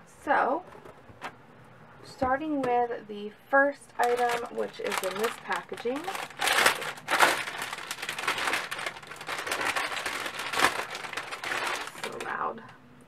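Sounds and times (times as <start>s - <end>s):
plastic packaging crinkling: 4.0s - 12.5s.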